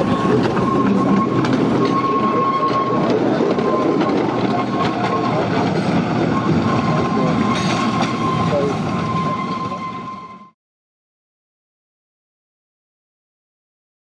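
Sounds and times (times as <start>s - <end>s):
rail joint clicks: 0.0s - 9.6s
train wheels rumbling on rail: 0.0s - 10.6s.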